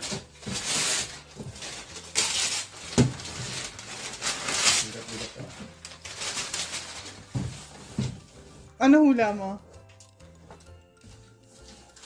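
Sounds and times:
wrapping paper tearing and crumpling: 0.0s - 8.6s, 11.2s - 12.0s.

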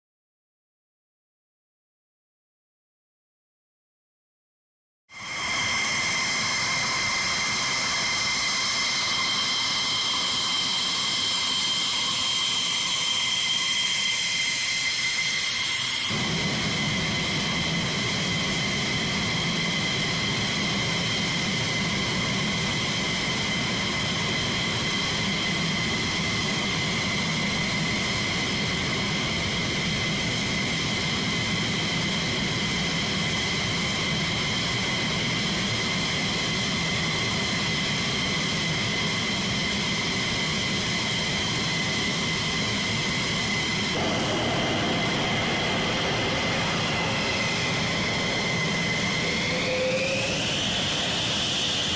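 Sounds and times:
jet engines whining: 5.1s - 51.9s
deep rumble: 44.0s - 51.2s.

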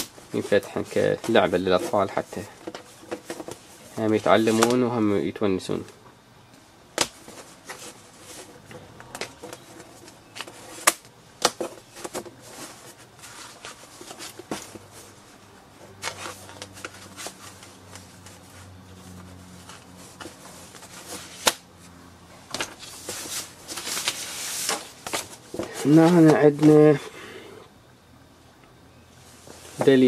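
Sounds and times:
card handling: 0.0s - 4.9s, 7.0s - 15.2s
cardboard snapping: 7.0s - 7.3s, 10.4s - 12.3s, 21.2s - 21.6s.

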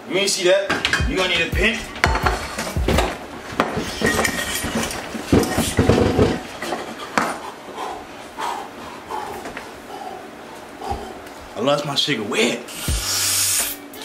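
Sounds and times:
kitchen items knocking and clinking: 0.7s - 7.3s
heavier thumps: 0.8s - 6.6s, 12.9s - 13.2s.

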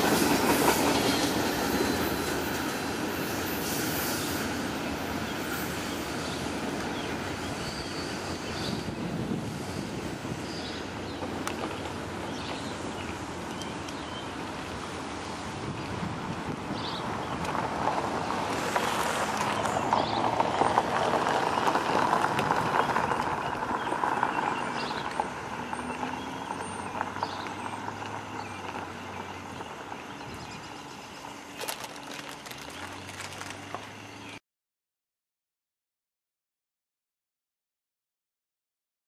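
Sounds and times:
freight train wheels rumbling: 0.0s - 34.3s
wheels clicking over rail joints: 17.3s - 34.0s.

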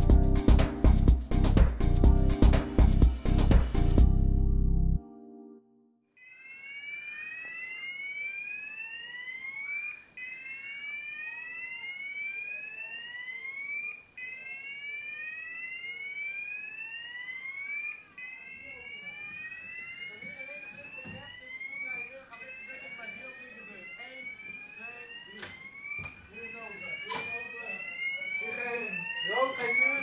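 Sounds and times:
fire alarm whooping: 6.2s - 30.0s.

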